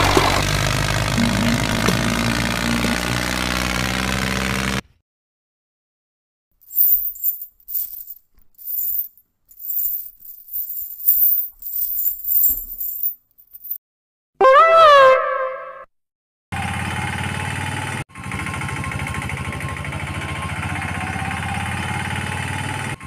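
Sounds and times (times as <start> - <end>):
engine running: 0.0 - 4.8, 16.6 - 23.0
metal chain clinking: 6.6 - 13.8.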